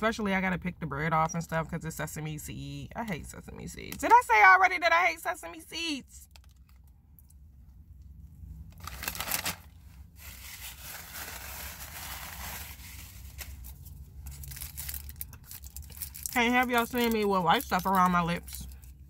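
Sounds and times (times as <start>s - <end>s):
paper wrapping tearing and rustling: 8.7s - 16.3s.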